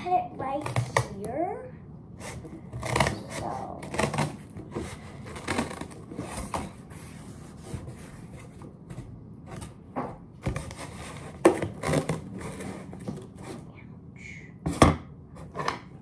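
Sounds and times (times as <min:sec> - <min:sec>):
scissors cutting cardboard: 0:02.2 - 0:09.7, 0:10.4 - 0:13.6.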